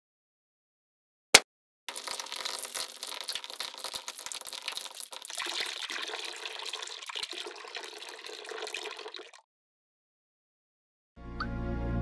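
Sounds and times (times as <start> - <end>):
water pouring into tank: 1.9 - 9.4.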